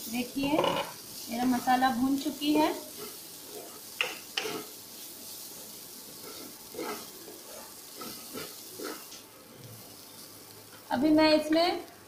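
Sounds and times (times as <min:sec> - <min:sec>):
masala sizzling in a pan: 0:00.0 - 0:12.0
spatula scraping a pan: 0:00.5 - 0:09.2.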